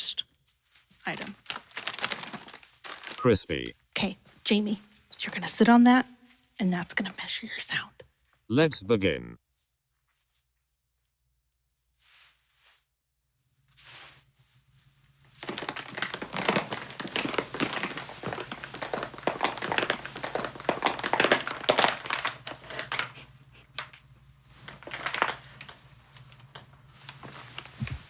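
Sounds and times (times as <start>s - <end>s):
plastic chip bag crinkling: 0.9s - 3.7s, 15.3s - 27.9s.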